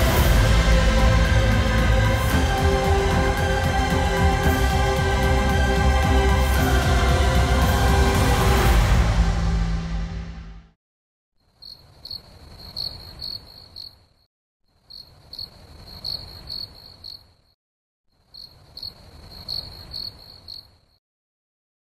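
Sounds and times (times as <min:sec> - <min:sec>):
music: 0:00.0 - 0:10.8
crickets chirping: 0:11.6 - 0:14.1, 0:14.9 - 0:17.4, 0:18.3 - 0:21.0.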